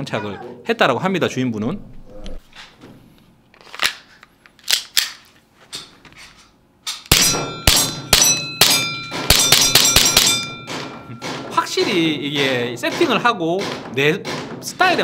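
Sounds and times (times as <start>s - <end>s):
airsoft pistol shots: 7.1s - 11.5s.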